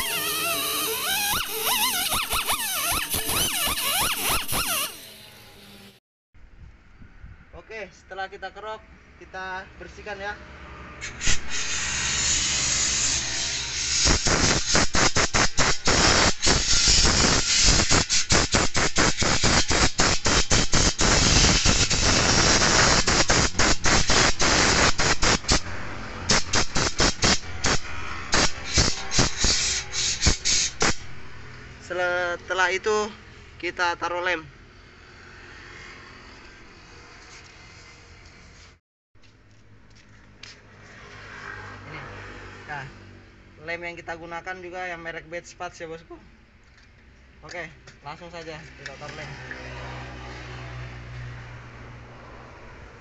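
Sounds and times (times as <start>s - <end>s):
air blow gun hissing bursts: 0.0s - 5.0s, 11.1s - 25.7s, 26.3s - 31.1s
pneumatic buffer grinding rubber: 0.0s - 5.9s, 11.1s - 31.1s.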